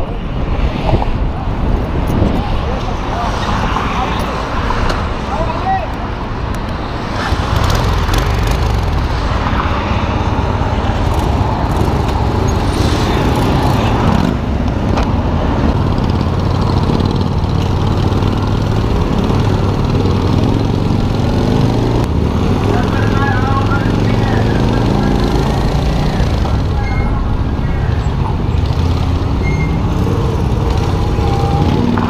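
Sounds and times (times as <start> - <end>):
motorcycle engine pulling away: 15.8 - 22.6.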